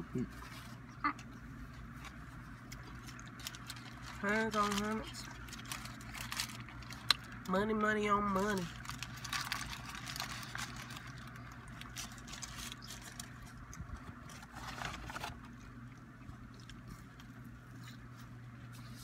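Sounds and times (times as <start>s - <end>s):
steady low hum: 0.0s - 19.0s
chewing: 0.4s - 4.1s, 9.0s - 19.0s
paper wrappers crinkling: 1.9s - 15.7s.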